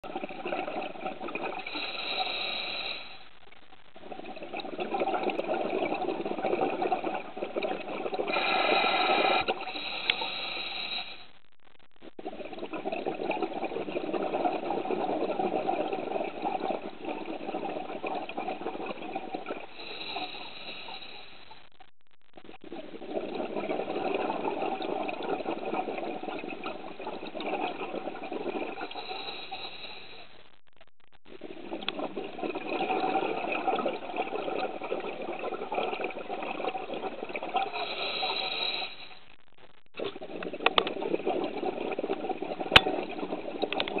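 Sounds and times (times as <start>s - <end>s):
bubbling underwater: 0.0s - 2.5s, 3.4s - 9.9s, 12.0s - 20.2s, 22.3s - 29.4s, 31.2s - 38.4s, 39.9s - 44.0s
diver breathing through regulator: 8.3s - 11.3s, 28.9s - 30.3s, 37.7s - 39.2s.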